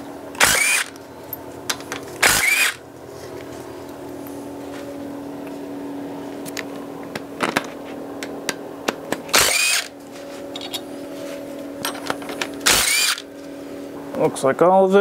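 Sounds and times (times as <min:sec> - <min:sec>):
power tool spinning bolts: 0:00.4 - 0:01.0, 0:02.2 - 0:02.8, 0:09.3 - 0:09.9, 0:12.6 - 0:13.3
clicks of tool and bolts: 0:10.5 - 0:10.8, 0:11.8 - 0:12.7.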